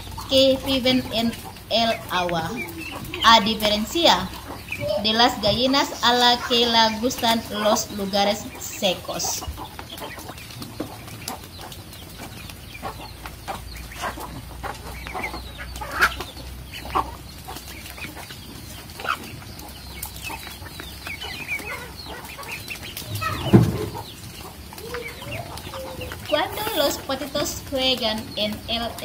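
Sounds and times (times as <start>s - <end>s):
ducklings peeping: 0.0s - 29.0s
hen clucking: 0.0s - 29.0s.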